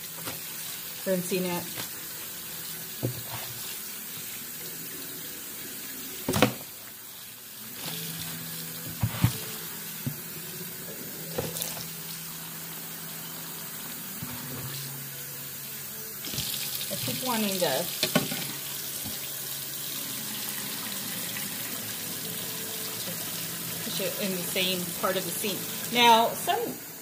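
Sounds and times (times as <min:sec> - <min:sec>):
faucet running into steel sink: 0:15.6 - 0:27.0.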